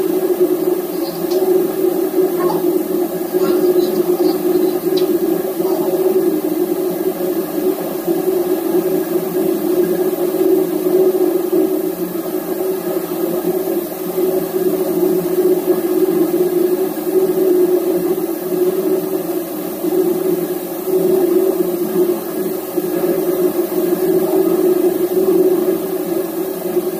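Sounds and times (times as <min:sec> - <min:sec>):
ship machinery humming: 0:00.5 - 0:06.8.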